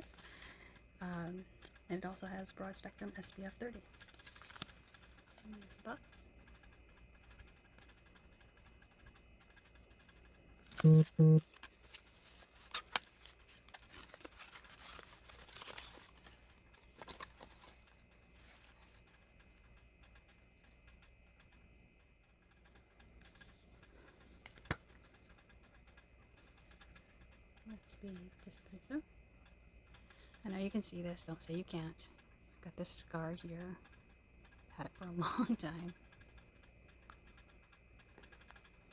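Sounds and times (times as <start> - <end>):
packaging rustling: 4.0 - 5.0, 11.5 - 18.8
clicks and taps: 6.4 - 11.4
short loud tones: 10.8 - 11.4.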